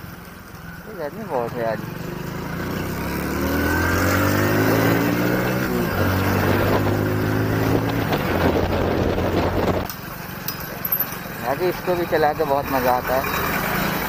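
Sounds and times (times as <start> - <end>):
motorcycle engine accelerating: 0.0 - 14.0.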